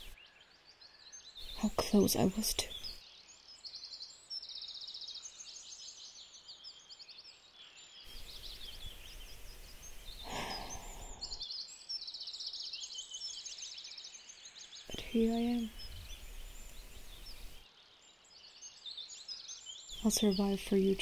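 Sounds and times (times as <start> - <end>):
songbirds chirping and trilling: 0.0 - 21.0
woman sighing: 10.3 - 11.4.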